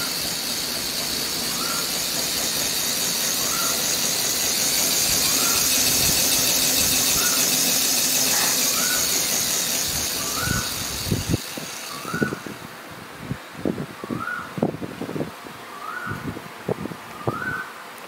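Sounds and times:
short rising chirp: 0:00.0 - 0:12.7
model steam locomotive hissing: 0:00.0 - 0:12.9.

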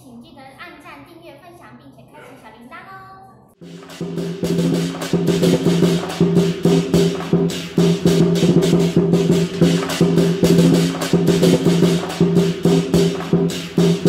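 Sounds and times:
fast drum and percussion strokes: 0:03.6 - 0:14.0.

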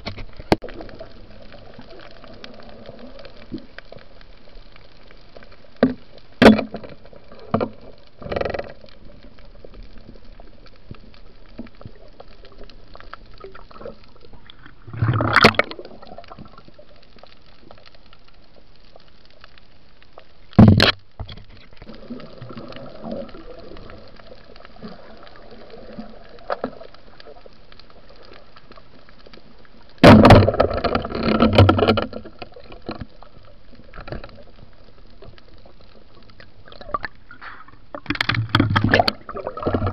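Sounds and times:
sharp clicks and knocks: 0:00.0 - 0:00.7, 0:20.5 - 0:21.9, 0:37.9 - 0:39.9
steady underwater hiss: 0:00.0 - 0:30.8, 0:32.2 - 0:39.9.

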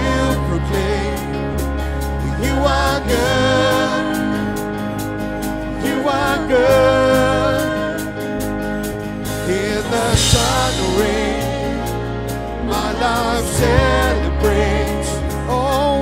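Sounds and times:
person singing with vibrato: 0:00.0 - 0:16.0
worship song with band: 0:00.0 - 0:16.0
cymbal crash: 0:10.1 - 0:12.0.

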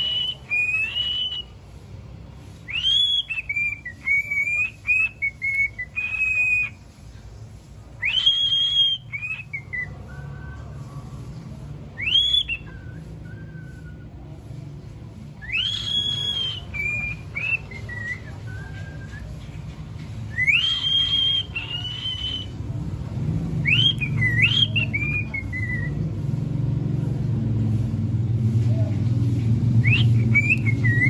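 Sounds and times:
cockatiel whistling song: 0:00.0 - 0:01.6, 0:02.6 - 0:06.8, 0:08.0 - 0:11.2, 0:11.9 - 0:14.4, 0:15.3 - 0:19.4, 0:20.3 - 0:22.6, 0:23.6 - 0:26.0, 0:29.8 - 0:31.0.

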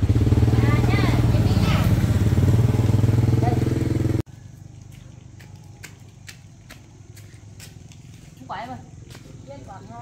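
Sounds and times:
motorbike engine running: 0:00.0 - 0:04.6.

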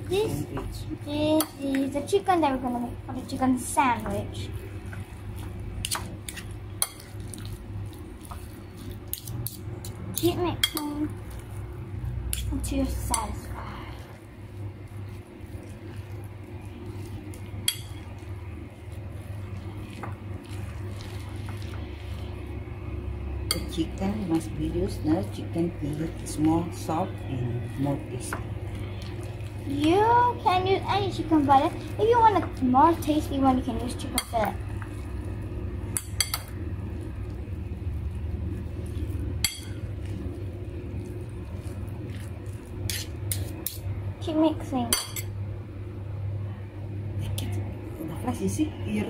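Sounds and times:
steady low hum: 0:00.0 - 0:49.0
metal spoon stirring in bowl: 0:03.1 - 0:21.9, 0:23.4 - 0:35.2, 0:35.9 - 0:36.6, 0:38.5 - 0:43.9
spoon clinking and scraping bowl: 0:04.9 - 0:07.6, 0:16.9 - 0:18.2, 0:23.5 - 0:23.8, 0:35.9 - 0:36.5, 0:38.9 - 0:40.2, 0:41.6 - 0:43.9.

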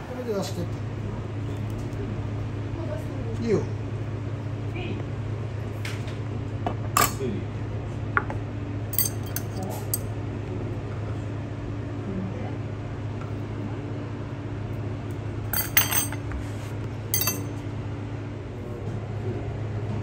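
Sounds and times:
steady low hum: 0:00.0 - 0:20.0
glass clinking: 0:09.0 - 0:10.0, 0:15.6 - 0:16.2, 0:17.2 - 0:17.5.

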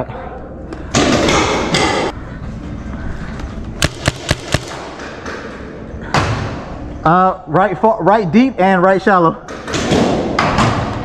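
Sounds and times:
paintball markers firing: 0:03.8 - 0:05.3.

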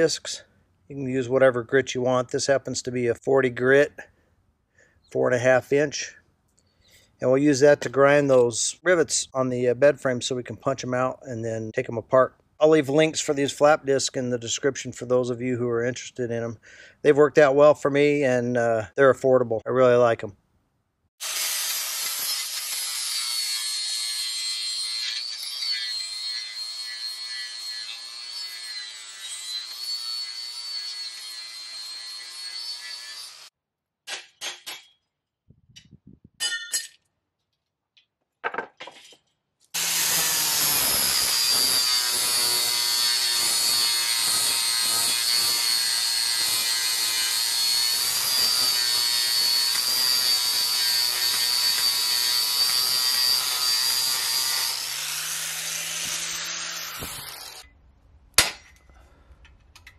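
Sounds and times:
angle grinder whining: 0:21.2 - 0:33.5, 0:39.8 - 0:57.7.

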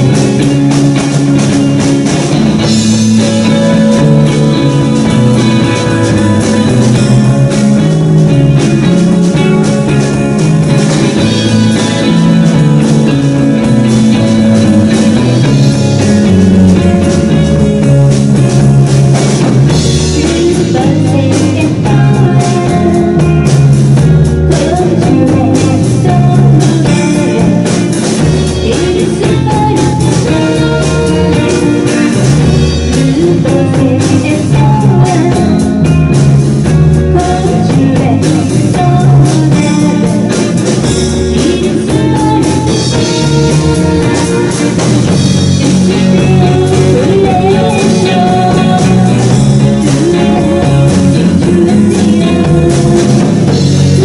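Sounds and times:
drum kit: 0:00.0 - 0:54.0
electric guitars: 0:00.0 - 0:54.0
woman singing: 0:20.0 - 0:36.1, 0:36.7 - 0:40.6, 0:41.2 - 0:44.8, 0:45.6 - 0:54.0.

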